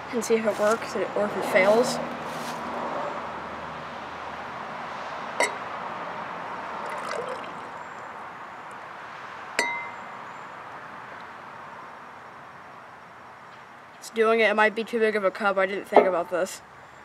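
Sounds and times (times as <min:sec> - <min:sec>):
liquid pouring into glass: 0:06.7 - 0:08.1
sharp glass clinks: 0:09.6 - 0:10.0.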